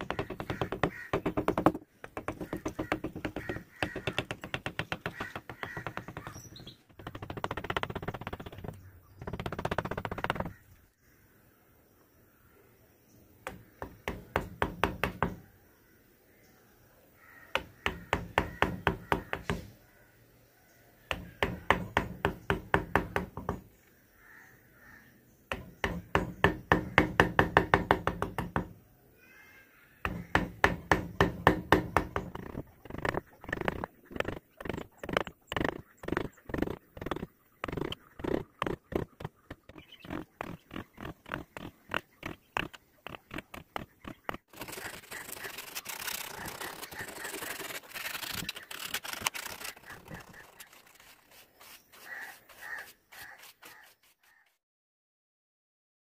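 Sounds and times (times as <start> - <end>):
mallet tapping chisel into wood: 0.0 - 10.5.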